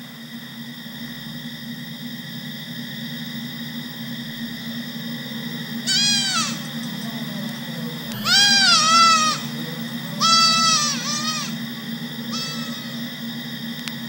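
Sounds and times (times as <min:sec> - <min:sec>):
steady low hum: 0:00.0 - 0:14.0
goat kid bleating: 0:05.9 - 0:06.7, 0:08.1 - 0:09.6, 0:10.2 - 0:11.6, 0:12.3 - 0:13.0.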